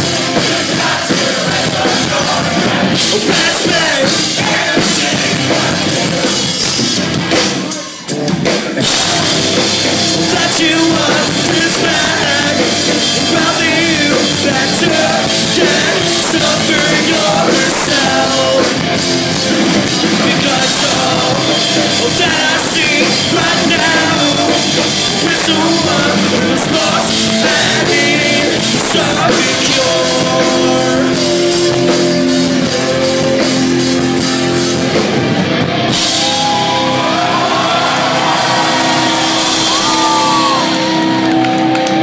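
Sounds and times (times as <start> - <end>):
drums: 0.0 - 42.0
electric guitars: 0.0 - 42.0
person singing: 7.6 - 18.8, 19.8 - 34.6.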